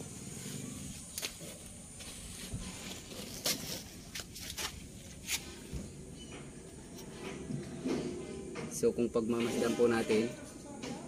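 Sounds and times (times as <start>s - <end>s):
handling clicks and scuffs: 1.0s - 7.5s.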